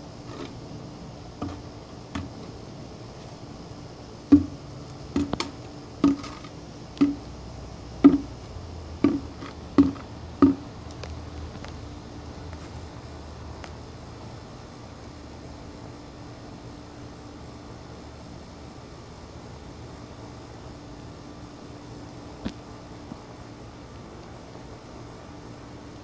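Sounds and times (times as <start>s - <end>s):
plastic bucket knocking on concrete: 4.3s - 6.4s, 7.0s - 7.2s, 8.0s - 8.3s, 9.0s - 10.6s.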